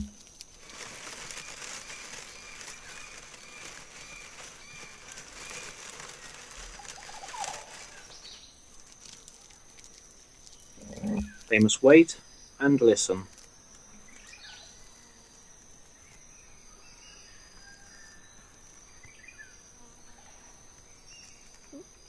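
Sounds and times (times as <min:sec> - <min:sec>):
light rustling ticks: 0:00.0 - 0:11.7, 0:13.1 - 0:14.4.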